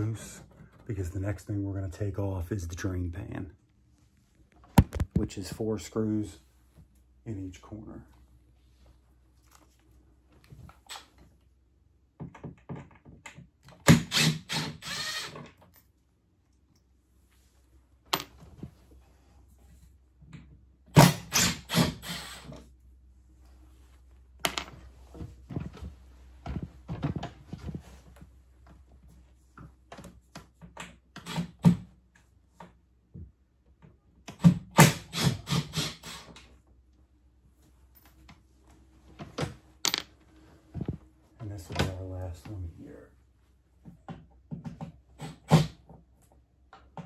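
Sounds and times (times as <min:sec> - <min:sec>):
cordless drill running: 0:13.9 - 0:15.4, 0:21.3 - 0:22.5.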